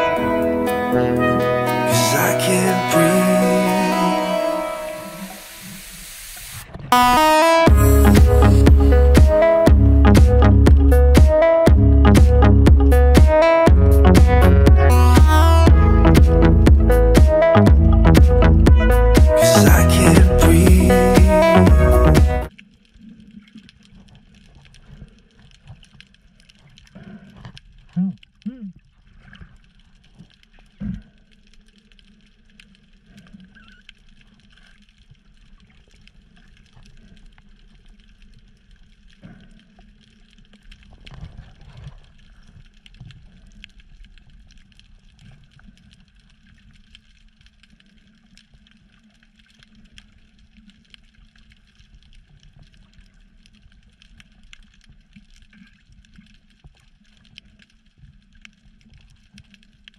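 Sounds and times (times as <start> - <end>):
faint fine crackle: 2.5 - 7.0, 22.5 - 59.9
muffled underwater water rumble: 5.2 - 13.1.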